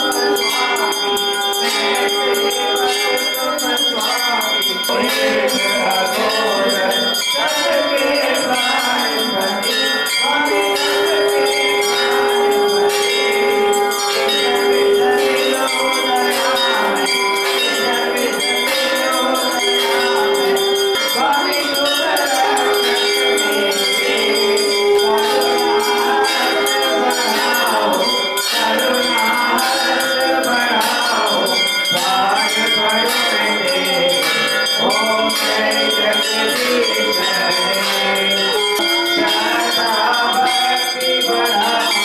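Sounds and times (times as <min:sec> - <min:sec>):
temple bells clanging: 0:00.0 - 0:42.0.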